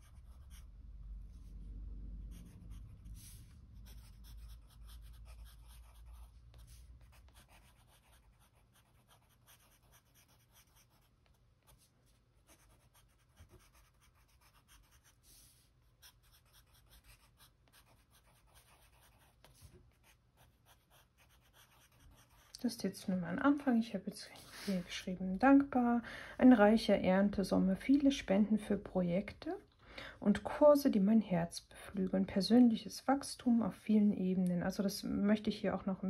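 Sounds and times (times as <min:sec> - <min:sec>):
pencil scratching on paper: 0:00.0 - 0:00.8, 0:02.2 - 0:22.6
low rumble: 0:00.2 - 0:04.2.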